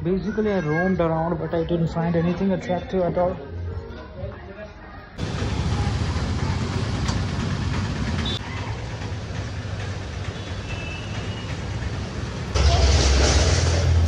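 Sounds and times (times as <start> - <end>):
rumble of street traffic: 5.2 - 14.0.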